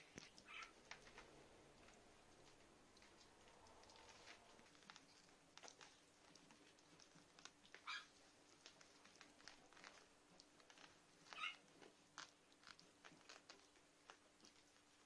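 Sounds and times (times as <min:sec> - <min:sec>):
puppies rustling and scratching: 0:00.0 - 0:15.0
puppies squeaking: 0:00.3 - 0:00.8, 0:07.8 - 0:08.2, 0:11.2 - 0:11.6.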